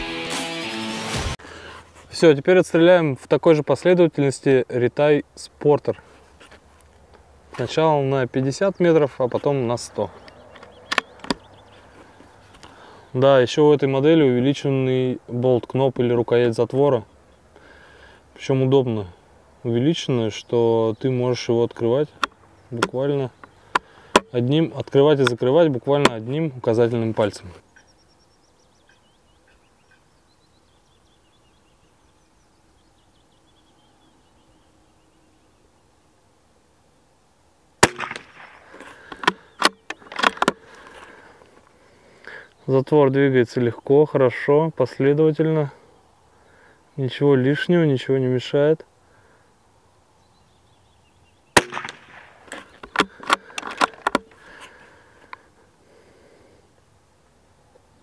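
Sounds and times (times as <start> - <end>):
faint songbirds chirping: 1.4 - 58.0
rifle shot: 37.8 - 38.7, 51.6 - 53.5
rifle bolt clicking: 39.1 - 40.6.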